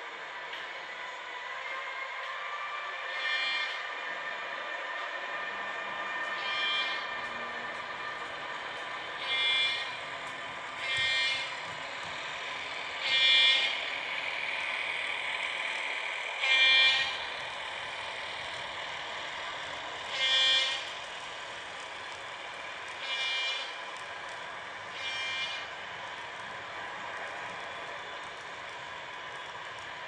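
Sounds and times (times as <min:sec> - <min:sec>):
diesel engine drone: 0:00.0 - 0:30.0
locomotive horn blasts: 0:16.4 - 0:17.2.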